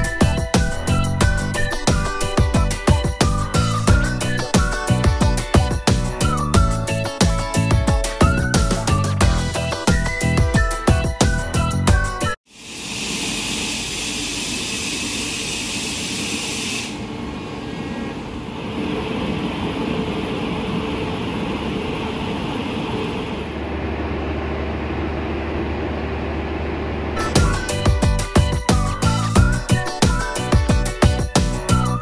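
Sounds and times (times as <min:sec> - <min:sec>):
electric train mechanical noise: 0:12.5 - 0:27.9.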